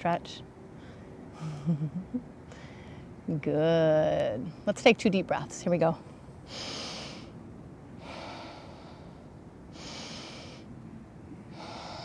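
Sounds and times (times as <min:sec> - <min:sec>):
slow deep breathing: 0:02.5 - 0:03.2, 0:06.1 - 0:10.7, 0:11.4 - 0:12.0.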